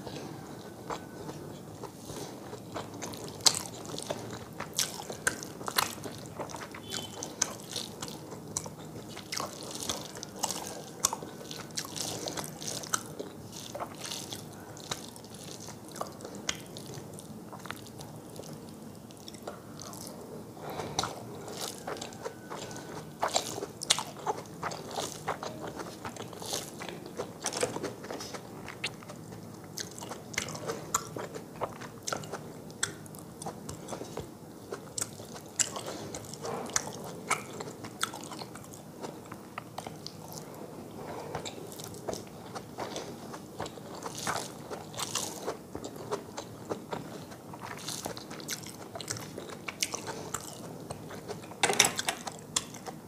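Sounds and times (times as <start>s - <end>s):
person chewing food: 0.0s - 53.0s.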